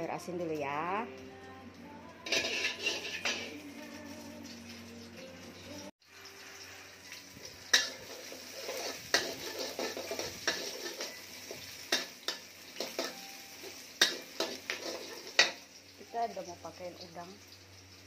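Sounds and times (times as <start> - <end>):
food sizzling in oil: 0.0 - 18.0
spatula scraping and clanking wok: 2.2 - 3.6, 6.1 - 15.7.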